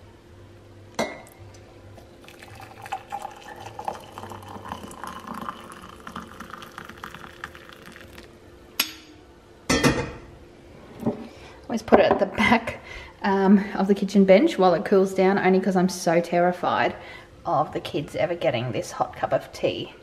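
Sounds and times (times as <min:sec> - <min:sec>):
water pouring into a mug: 0:02.0 - 0:08.4.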